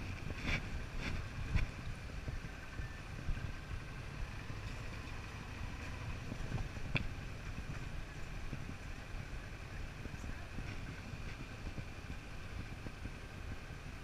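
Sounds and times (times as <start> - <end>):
motorcycle engine rumbling: 0.0 - 14.0
road and wind noise: 0.0 - 14.0.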